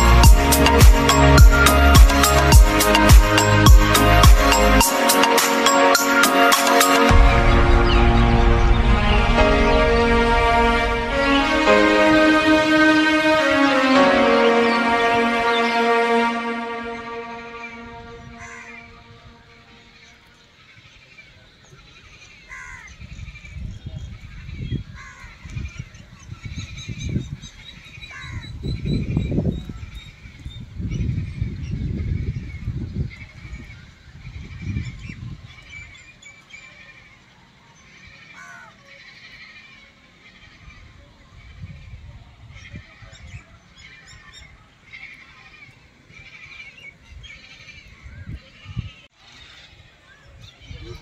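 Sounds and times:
irregular low rumble: 7.1s - 13.4s.

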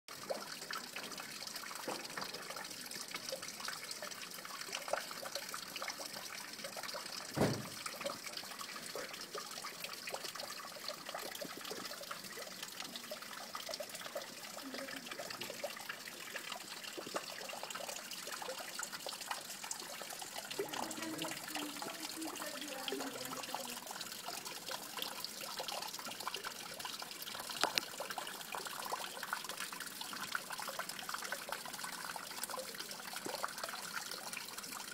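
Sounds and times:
trickle of running water: 0.1s - 34.9s
knock: 7.4s - 7.8s.

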